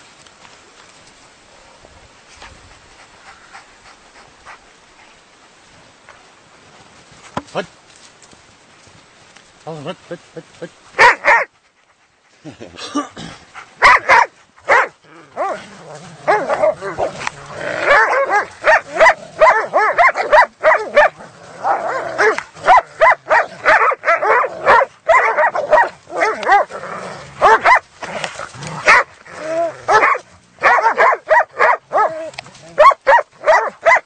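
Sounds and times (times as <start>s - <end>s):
dogs barking and yelping: 11.0s - 11.6s, 13.6s - 34.0s.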